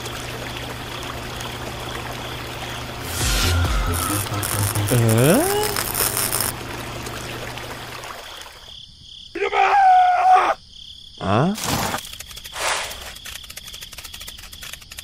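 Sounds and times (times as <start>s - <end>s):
cartoon voice exclamation: 4.9s - 5.8s.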